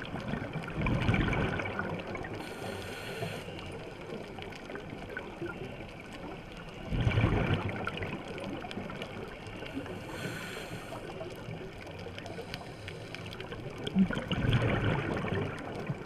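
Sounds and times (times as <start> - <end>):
regulator bubbles exhaled: 0.0 - 3.4, 6.8 - 11.6, 12.2 - 16.0
underwater hiss with clicking: 1.7 - 6.9, 7.7 - 14.3.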